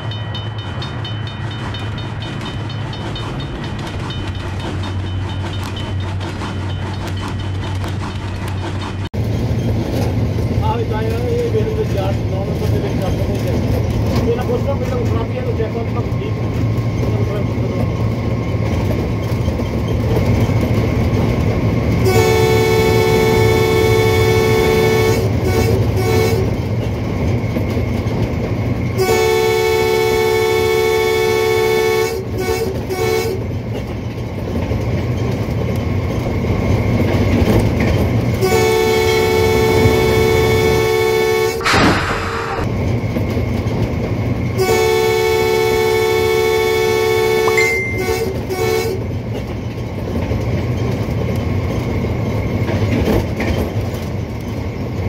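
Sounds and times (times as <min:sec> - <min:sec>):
train wheel clicks: 0:00.0 - 0:22.2, 0:22.9 - 0:29.0, 0:32.2 - 0:40.8, 0:47.4 - 0:55.0
train low rumble: 0:00.0 - 0:55.0
train horn blasts: 0:22.0 - 0:26.6, 0:29.0 - 0:33.4, 0:38.4 - 0:42.7, 0:44.6 - 0:49.1
quick ringing bell ticks: 0:47.5 - 0:48.1.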